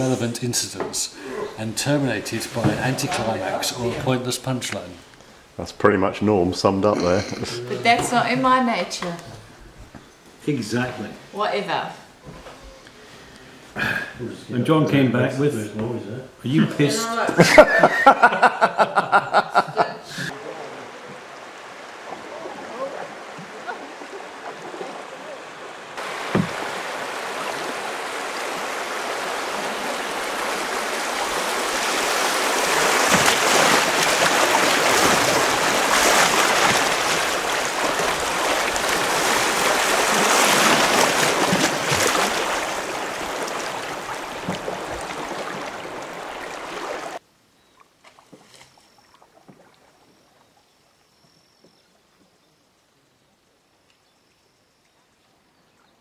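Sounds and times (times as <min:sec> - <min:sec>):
canoe knocks: 0:02.5 - 0:04.1, 0:07.8 - 0:08.4, 0:22.0 - 0:27.7, 0:31.3 - 0:46.6
river rapid rushing: 0:20.2 - 0:47.2.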